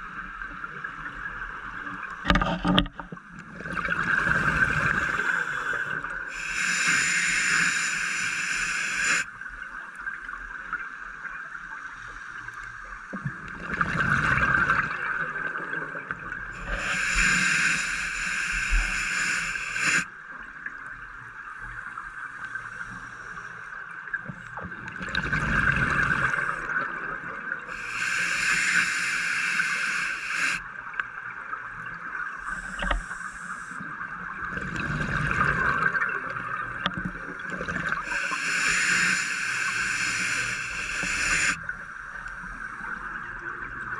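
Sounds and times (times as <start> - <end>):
hissing regulator inhalations: 4.8 - 9.3, 16.6 - 20.1, 27.7 - 30.7, 32.4 - 34.0, 37.9 - 43.0.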